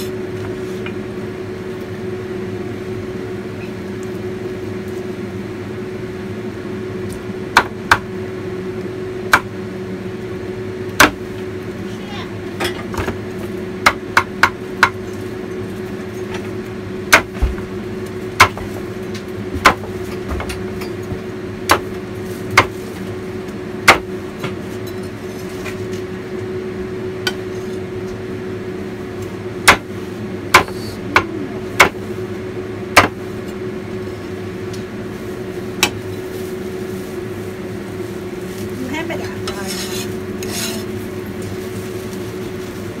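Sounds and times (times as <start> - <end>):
steady low hum: 0.0 - 43.0
cleaver chopping on wooden block: 11.0 - 11.2, 30.5 - 32.0, 33.0 - 33.2.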